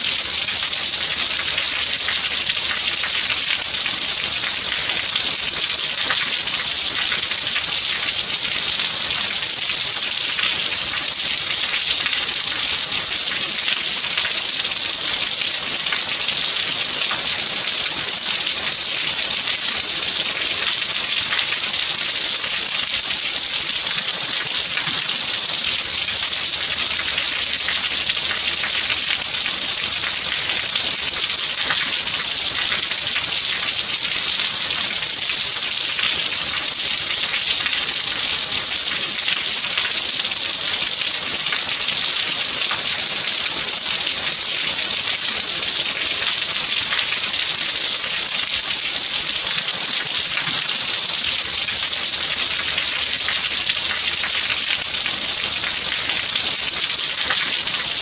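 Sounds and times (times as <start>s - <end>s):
steady rain: 0.0s - 58.0s.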